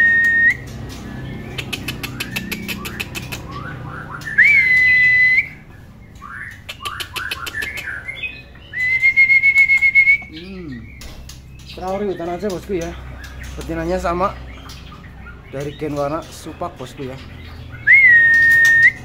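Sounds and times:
bird clicks and chirps: 0.1s - 19.0s
bird long whistles: 4.2s - 5.6s.

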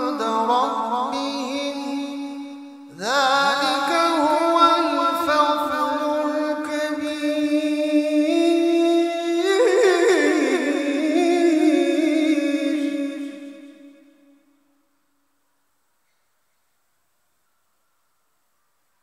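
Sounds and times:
man reciting melodically: 0.0s - 14.6s.

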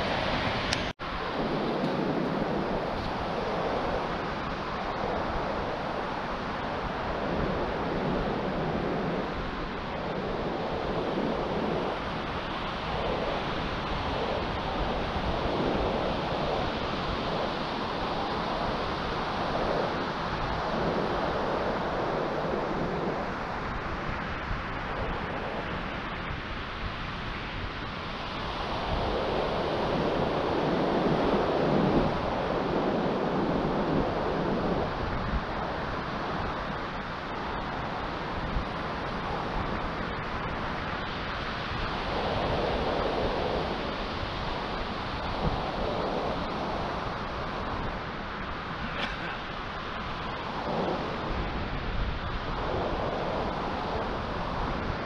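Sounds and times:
waves washing up sandy shore: 0.0s - 55.0s
wind noise on microphone: 0.0s - 55.0s.

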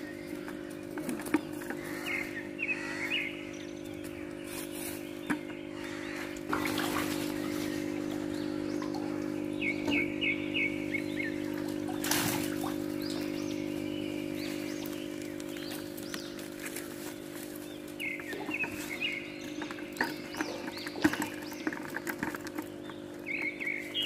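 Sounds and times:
bird chirping: 0.0s - 24.0s
steady hum: 0.0s - 24.0s
water splashing from net: 6.4s - 9.4s, 11.4s - 13.4s.

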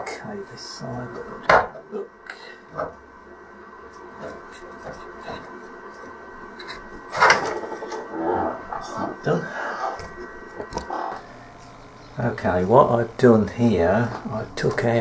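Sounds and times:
wires and circuit board scraping: 3.9s - 12.3s.

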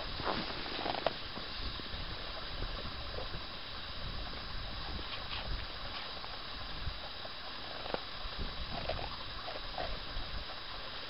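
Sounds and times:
footsteps crunching in snow: 0.0s - 1.7s
steady hiss: 0.0s - 11.0s
wind rumbling on microphone: 0.0s - 11.0s.

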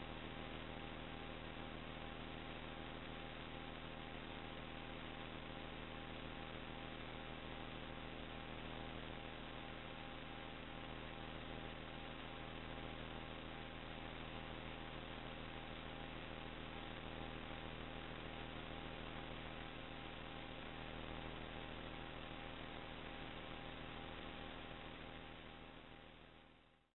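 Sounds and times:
faint steady tones: 0.0s - 26.8s.

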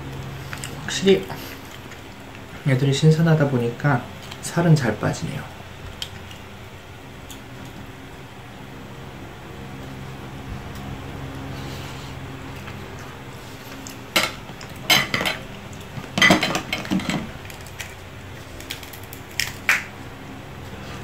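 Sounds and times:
low steady hum: 0.0s - 21.0s
lobster shell cracking: 13.7s - 20.0s.

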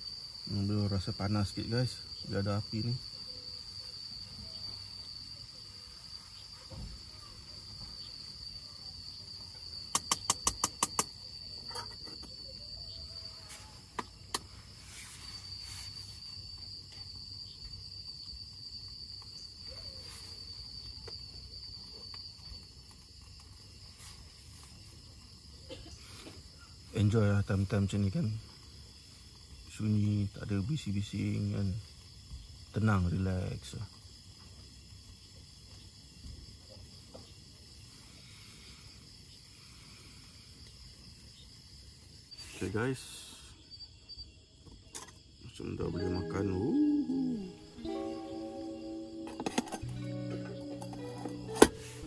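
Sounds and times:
crickets trilling: 0.0s - 52.0s
sharp clicks: 9.9s - 11.2s.

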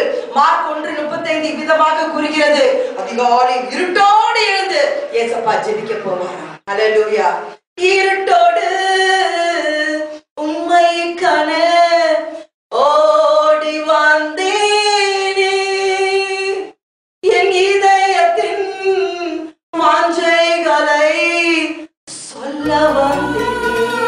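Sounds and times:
woman singing unaccompanied: 22.3s - 24.0s.

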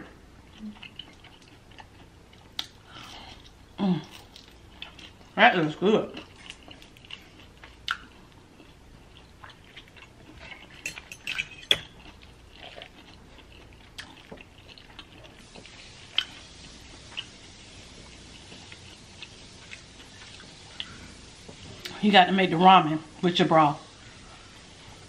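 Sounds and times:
chewing: 0.4s - 5.4s, 6.1s - 22.0s
fork clinking on glass bowl: 10.8s - 12.0s.

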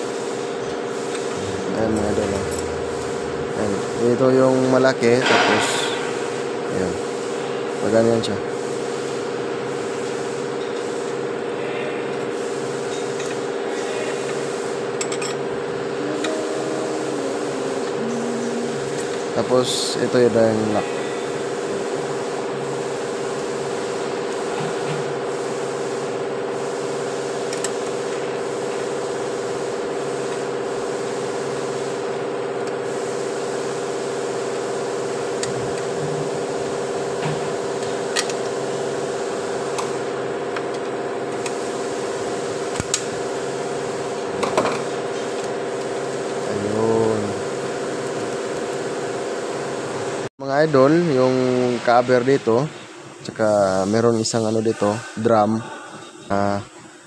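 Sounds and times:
machine hum: 0.6s - 7.0s, 14.4s - 24.4s.

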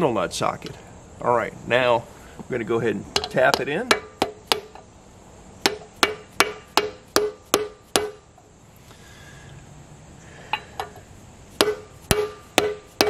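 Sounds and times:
mallet striking metal socket: 11.6s - 13.0s.

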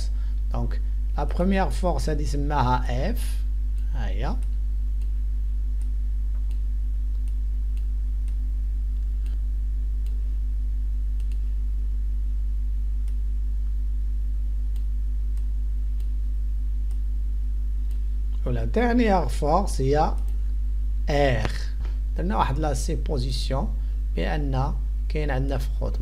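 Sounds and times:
low electrical hum: 0.0s - 26.0s
computer mouse clicks: 11.2s - 11.5s.

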